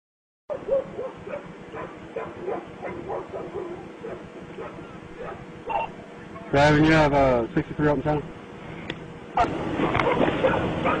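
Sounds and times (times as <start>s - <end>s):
dog barking: 0.5s - 5.8s, 9.8s - 11.0s.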